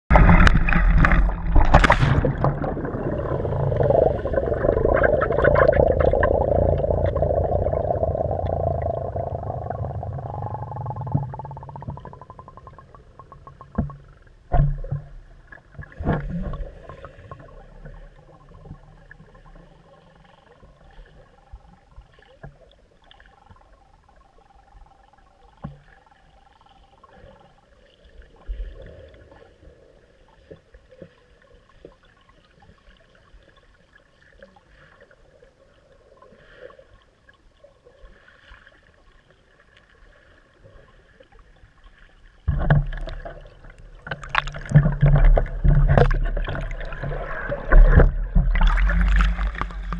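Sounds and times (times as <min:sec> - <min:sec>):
splash into water: 0:00.1 - 0:06.6
underwater rush and bubbling: 0:00.1 - 0:49.9.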